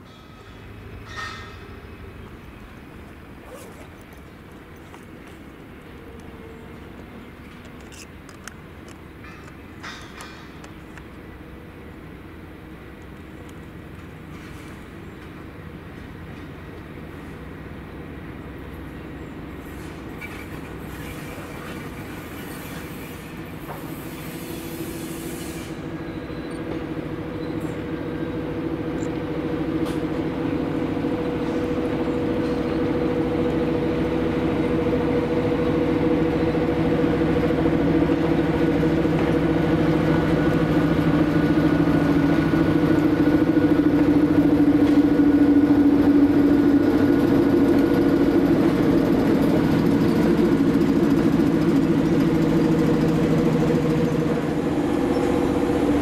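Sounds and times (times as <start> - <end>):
diesel locomotive engine hum: 0.0 - 56.0
wheels clicking over rail joints: 3.5 - 11.3.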